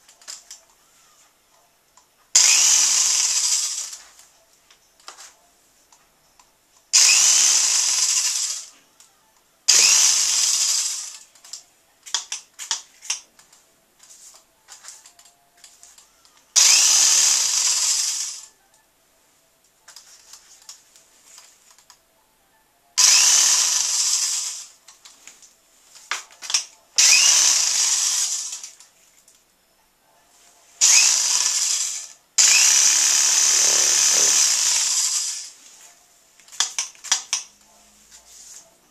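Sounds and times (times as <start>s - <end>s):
power drill whining: 2.4s - 4.1s, 7.0s - 8.8s, 9.7s - 11.3s, 16.6s - 18.5s, 23.0s - 24.8s, 27.0s - 28.8s, 30.8s - 35.6s.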